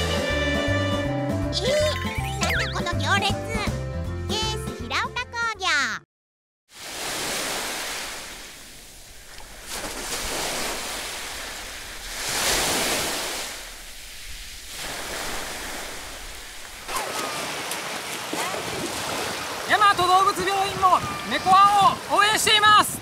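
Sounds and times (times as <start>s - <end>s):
sea surf washing onto beach: 6.7s - 23.0s.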